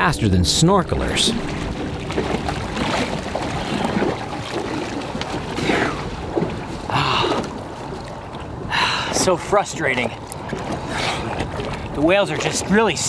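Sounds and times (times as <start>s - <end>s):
water splashing against boat: 0.0s - 13.0s.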